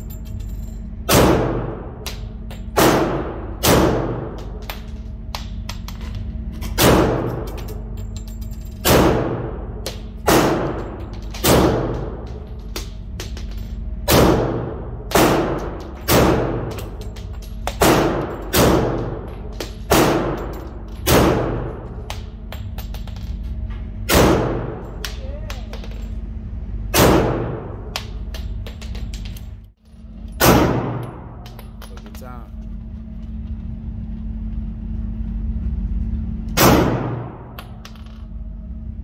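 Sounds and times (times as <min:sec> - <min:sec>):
pistol shots echoing indoors: 0:01.1 - 0:04.6, 0:06.8 - 0:07.9, 0:08.8 - 0:13.0, 0:14.1 - 0:17.0, 0:17.7 - 0:22.3, 0:24.1 - 0:25.2, 0:26.9 - 0:28.2, 0:30.4 - 0:31.6, 0:36.6 - 0:37.8.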